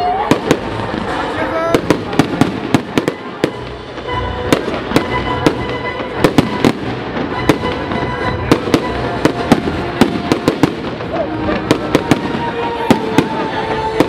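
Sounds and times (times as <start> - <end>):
fireworks bursting in sharp bangs: 0.0 - 14.0.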